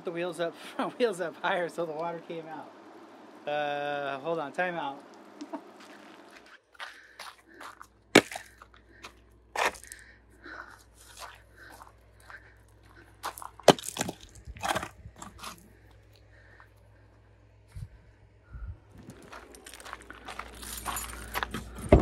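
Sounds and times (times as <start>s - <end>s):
footsteps crunching on gravel: 5.7s - 10.0s, 10.6s - 15.8s, 19.0s - 22.0s
firewood logs knocking: 13.3s - 15.5s.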